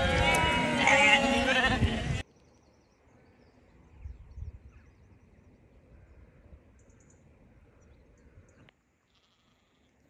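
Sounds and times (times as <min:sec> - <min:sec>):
low wind rumble on microphone: 0:00.0 - 0:02.2, 0:03.9 - 0:05.0.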